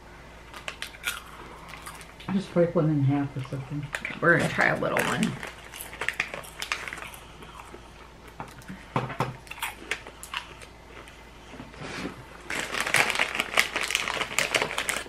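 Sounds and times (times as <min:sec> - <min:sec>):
foil wrapper crinkling: 0:04.5 - 0:07.2, 0:12.4 - 0:15.0.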